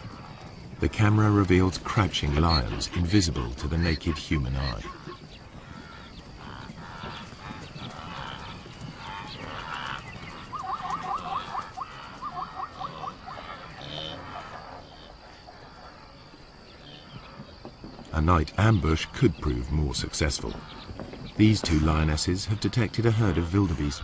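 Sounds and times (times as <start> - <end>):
animal calls at night: 0.0 - 17.5.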